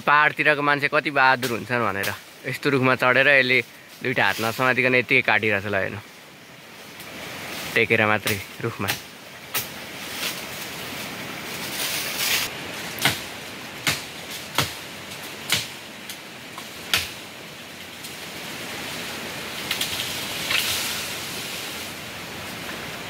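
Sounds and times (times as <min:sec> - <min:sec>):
blade chopping branches: 0:01.4 - 0:02.3, 0:07.0 - 0:17.2, 0:19.6 - 0:21.8.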